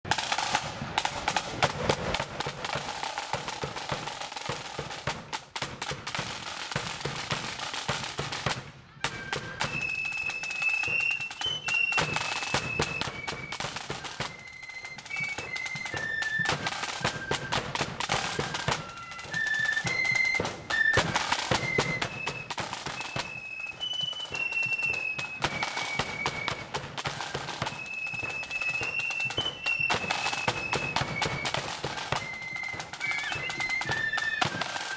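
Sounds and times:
side drums rattling: 0.1s - 34.9s
flutes playing high tune: 6.2s - 34.9s.

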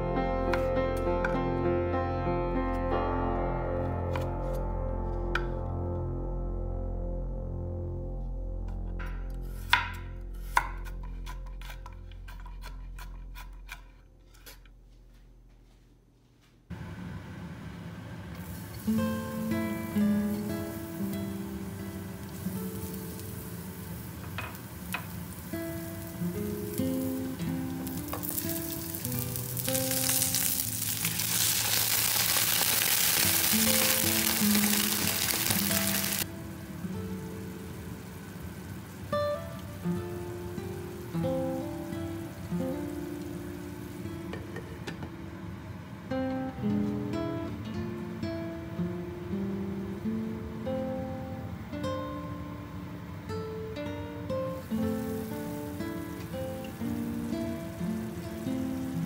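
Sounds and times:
food sizzling in a frying pan: 18.4s - 44.6s, 54.5s - 59.0s
water poured into hot pan: 27.8s - 36.3s.

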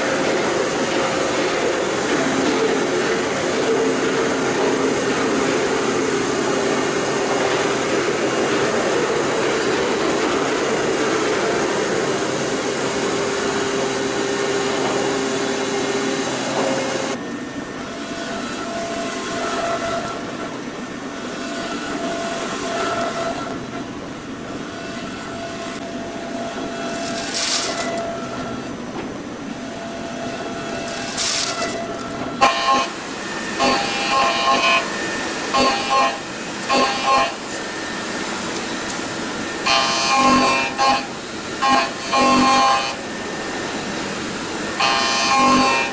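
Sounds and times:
milling machine cutting metal: 29.6s - 45.9s.

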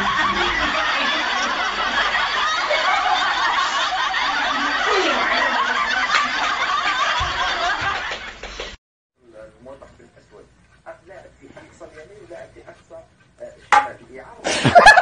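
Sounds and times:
crowd laughing: 0.0s - 8.7s, 14.5s - 15.0s.

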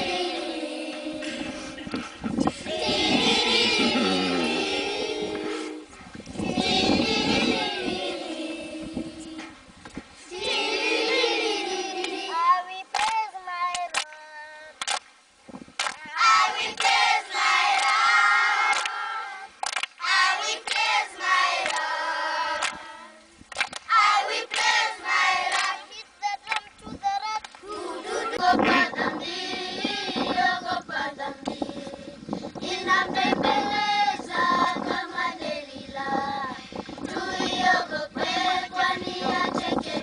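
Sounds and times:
children singing together: 0.0s - 9.6s, 10.2s - 14.7s, 16.1s - 23.2s, 23.9s - 40.0s
hand claps: 12.9s - 14.2s, 14.8s - 15.1s, 15.8s - 16.0s, 16.7s - 17.0s, 17.7s - 18.0s, 18.7s - 19.0s, 19.6s - 20.0s, 20.6s - 20.9s, 21.6s - 21.9s, 22.6s - 22.8s, 23.5s - 23.9s, 24.5s - 24.8s, 25.5s - 25.8s, 26.4s - 26.7s, 27.4s - 27.6s.

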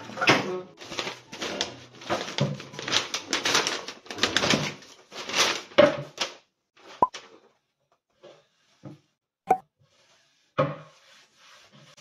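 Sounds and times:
roller blind and packaging rustling: 0.0s - 8.8s.

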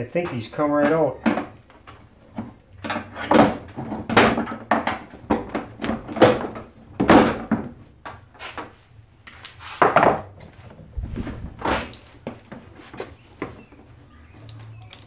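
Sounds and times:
hard plastic knocking and rattling: 0.2s - 8.2s.

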